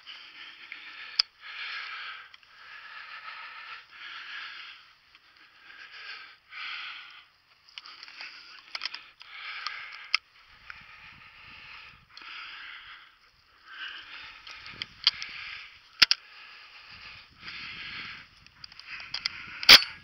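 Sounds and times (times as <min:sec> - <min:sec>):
person breathing hard: 0:00.0 - 0:20.0
metallic shotgun clicks: 0:18.7 - 0:20.0.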